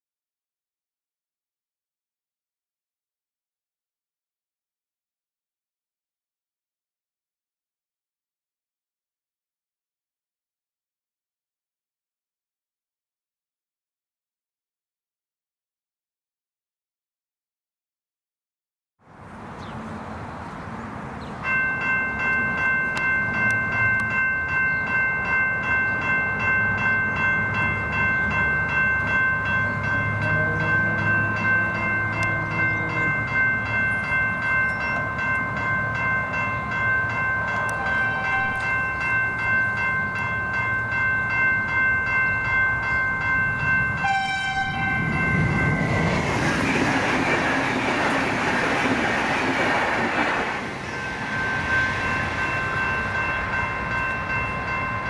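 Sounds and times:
level crossing bell ringing: 21.4 - 46.3, 50.9 - 55.0
train horn: 30.1 - 33.2, 37.5 - 38.8, 44.0 - 45.1
train wheels on rails: 42.8 - 55.0.

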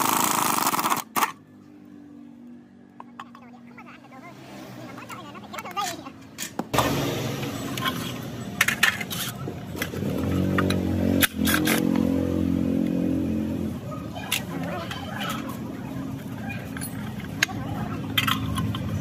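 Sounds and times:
metal tools clinking: 14.2 - 19.0.

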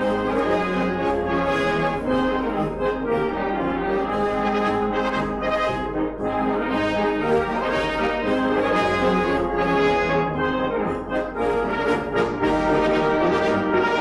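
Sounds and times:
wind band playing held chords: 0.0 - 14.0.

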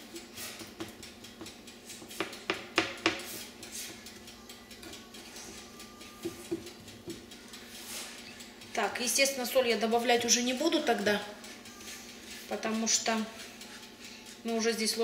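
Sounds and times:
spatula tapping against pan: 0.6 - 4.2, 6.0 - 7.4
spatula scraping sugar in pan: 3.2 - 4.0, 7.7 - 8.4.

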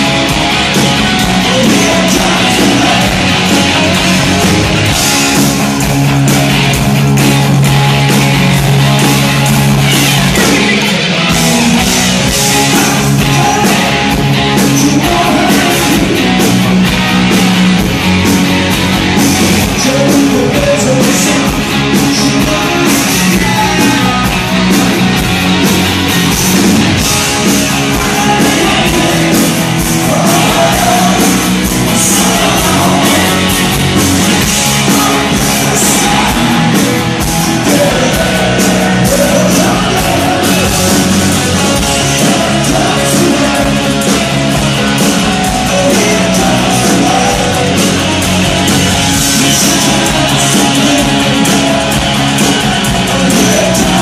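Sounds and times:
rock band playing: 0.0 - 54.0
man singing: 0.8 - 4.9, 10.3 - 16.5, 19.6 - 25.1, 27.1 - 54.0.

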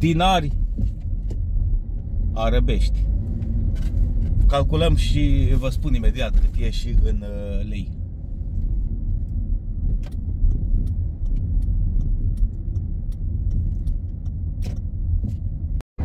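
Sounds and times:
car road and engine rumble: 0.0 - 16.0
faint regular ticking: 9.2 - 15.0.

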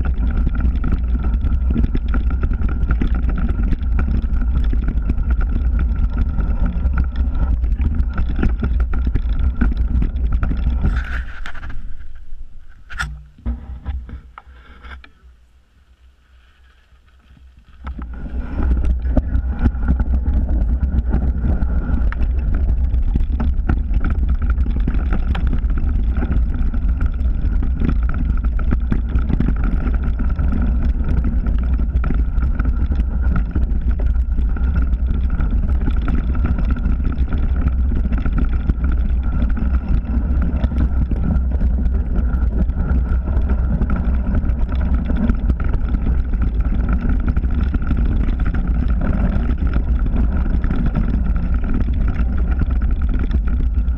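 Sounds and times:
bike rattling and clicking: 0.0 - 15.2, 16.9 - 53.9
wind buffeting microphone: 17.8 - 53.9.

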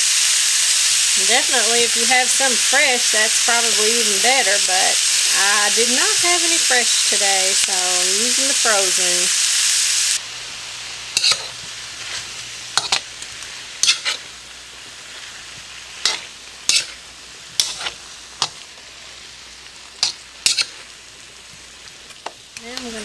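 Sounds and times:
vegetables sizzling in a wok: 0.0 - 23.0
metal spatula scraping a pan: 11.1 - 13.1, 13.8 - 14.3, 15.1 - 18.6, 20.0 - 20.9.

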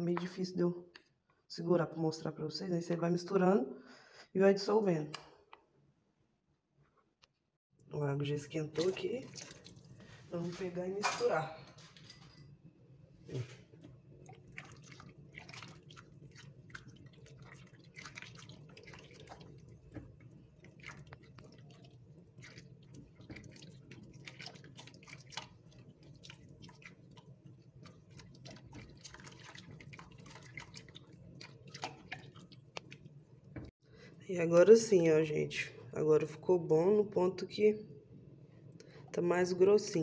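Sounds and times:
spatula stirring in a pot: 13.3 - 33.6.

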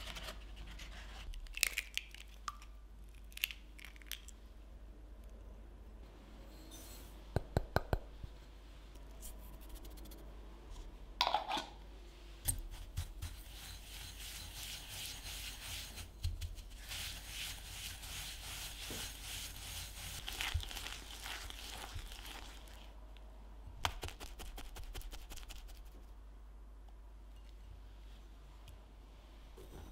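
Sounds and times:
whisk scratching in glass bowl: 12.5 - 22.4.

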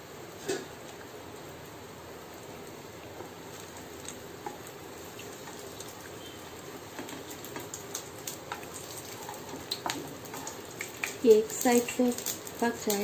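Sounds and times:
batter sizzling in oil: 0.0 - 13.0
utensils clicking on pan: 3.6 - 13.0.

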